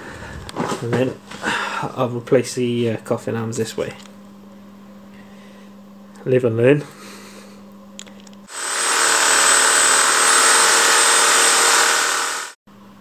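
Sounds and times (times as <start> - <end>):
handheld power tool cutting bolt: 8.5 - 12.6.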